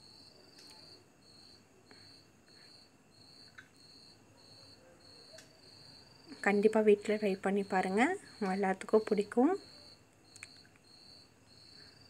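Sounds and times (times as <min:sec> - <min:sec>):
cricket chirping: 0:00.0 - 0:12.0
faint clicks: 0:00.5 - 0:00.8, 0:03.5 - 0:03.8, 0:10.3 - 0:10.8.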